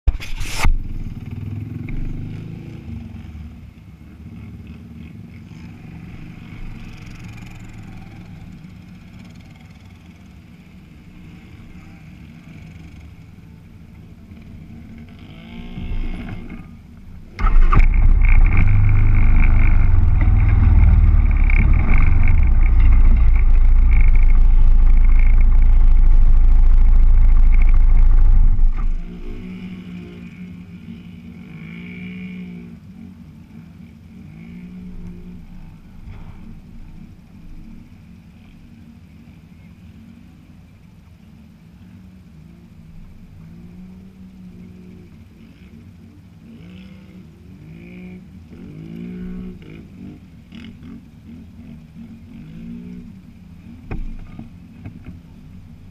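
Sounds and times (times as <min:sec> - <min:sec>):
atv engines running: 0:00.4 - 0:55.9
loud low engine drone: 0:15.6 - 0:30.7.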